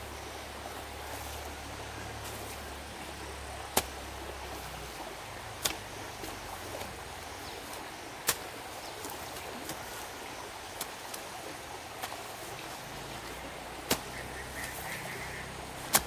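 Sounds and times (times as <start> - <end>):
hoe chopping into muddy soil: 3.7 - 4.2, 5.6 - 7.0, 8.2 - 10.0, 13.8 - 14.9, 15.8 - 16.0.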